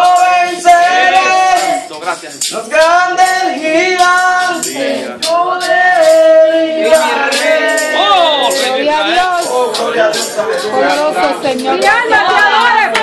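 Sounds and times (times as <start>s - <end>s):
man singing into microphone: 0.0s - 1.9s, 2.5s - 12.3s
light percussion ticks: 1.5s - 6.3s.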